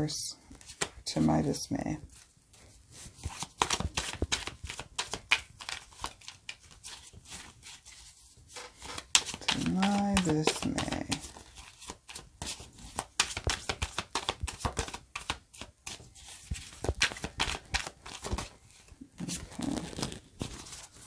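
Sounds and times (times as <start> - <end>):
cards flicking and clicking: 8.7 - 11.3.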